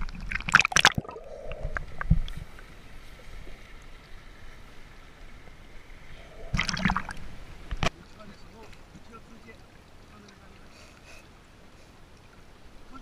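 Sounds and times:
water splash: 0:00.0 - 0:02.5, 0:06.2 - 0:07.9
muffled underwater water noise: 0:00.0 - 0:13.0.

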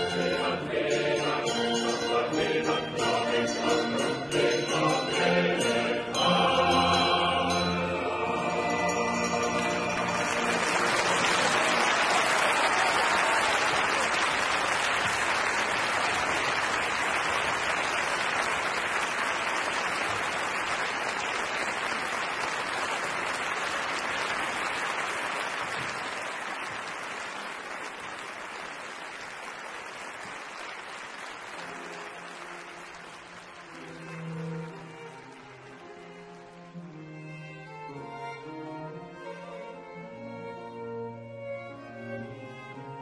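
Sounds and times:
audience applauding: 0:09.4 - 0:36.1.

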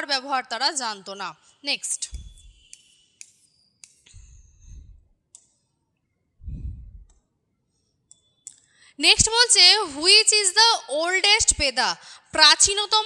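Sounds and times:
soft low rumbles: 0:02.1 - 0:02.5, 0:04.1 - 0:05.1, 0:06.4 - 0:07.2.

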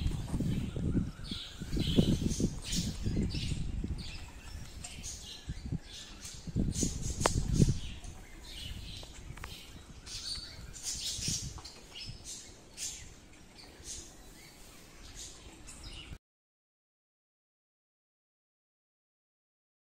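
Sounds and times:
low rumble on microphone: 0:00.0 - 0:13.1
small birds chirping: 0:00.0 - 0:16.2.

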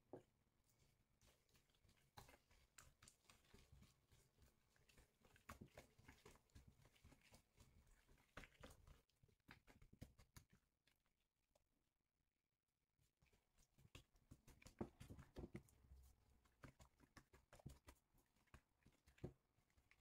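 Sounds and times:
wet dough squelching: 0:00.7 - 0:11.2, 0:13.0 - 0:20.0.

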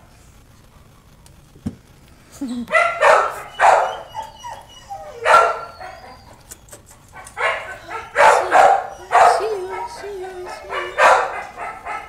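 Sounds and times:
puppy barking: 0:02.7 - 0:06.4, 0:07.1 - 0:12.0.

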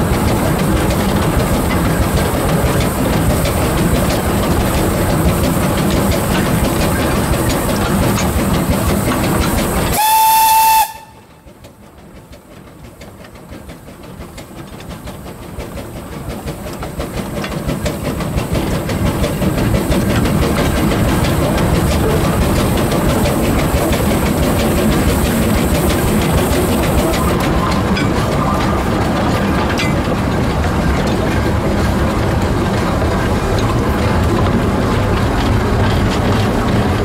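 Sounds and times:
train wheels clicking on rails: 0:00.0 - 0:37.0
steam locomotive whistle: 0:09.9 - 0:11.4.

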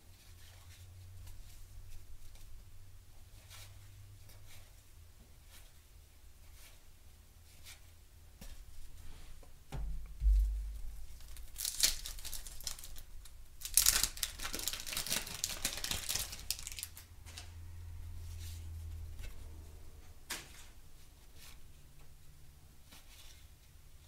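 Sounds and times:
wax paper pack tearing: 0:11.2 - 0:17.0
cards being handled: 0:11.2 - 0:17.4.

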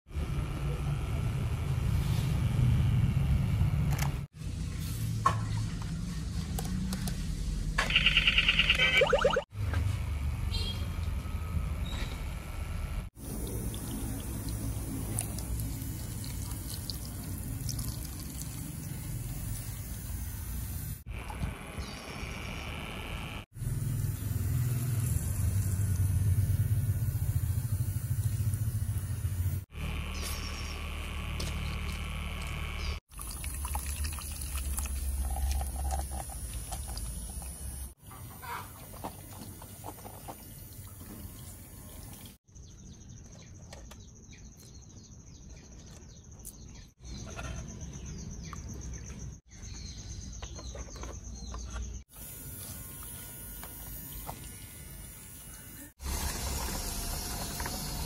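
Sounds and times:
motor rumble with flutter: 0:09.0 - 0:20.5, 0:21.1 - 0:37.9, 0:50.4 - 0:58.0
small birds chirping: 0:42.5 - 0:52.0.

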